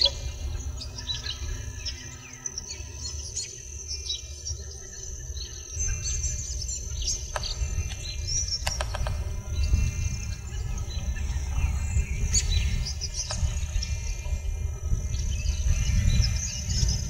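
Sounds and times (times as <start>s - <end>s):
low rumble: 0.0s - 17.0s
steady high buzz: 0.0s - 17.0s
swifts chirping: 0.0s - 17.0s.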